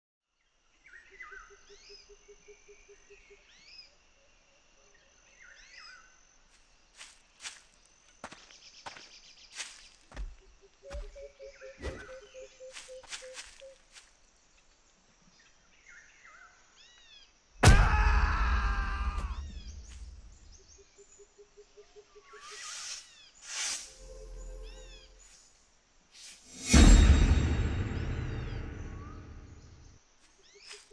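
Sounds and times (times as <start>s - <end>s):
birdsong: 7.4s - 25.5s, 27.7s - 30.9s
birds whistling: 8.9s - 13.8s
cartoon boom: 17.6s - 19.7s, 26.6s - 29.8s.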